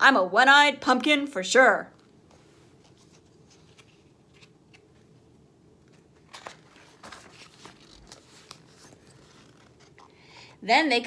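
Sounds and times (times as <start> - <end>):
paper page rustling: 2.3 - 5.1, 5.8 - 10.1.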